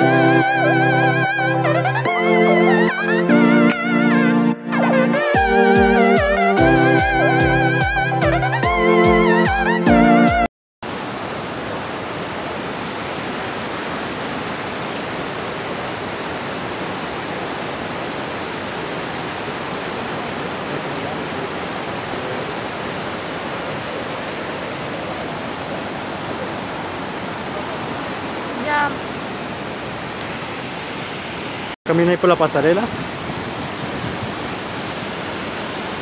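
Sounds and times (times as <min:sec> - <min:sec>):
waterfall rushing: 0:10.8 - 0:36.0.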